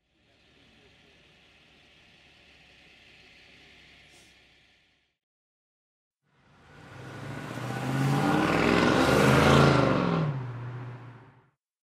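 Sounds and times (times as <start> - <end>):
car driving past: 6.4 - 11.4.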